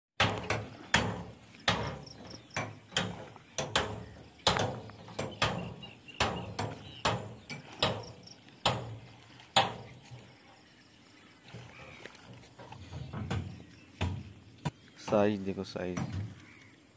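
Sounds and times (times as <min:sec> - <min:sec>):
sharp knocks: 0:00.2 - 0:10.0, 0:12.8 - 0:16.4.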